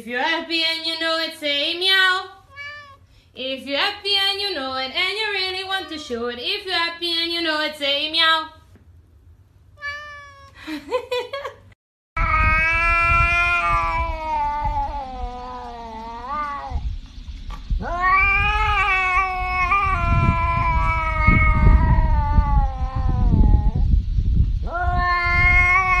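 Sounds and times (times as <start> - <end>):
cat yowling: 2.4 - 3.1, 5.4 - 6.2, 9.8 - 10.6, 12.2 - 16.8, 17.8 - 23.8, 24.7 - 26.0
low rumbling noise: 12.2 - 26.0.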